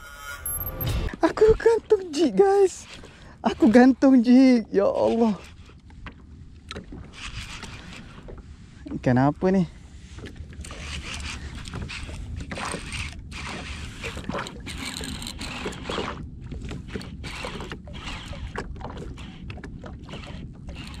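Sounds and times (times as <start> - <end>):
low rumble: 0.5 - 1.8
water splashing around jet ski: 9.8 - 21.0.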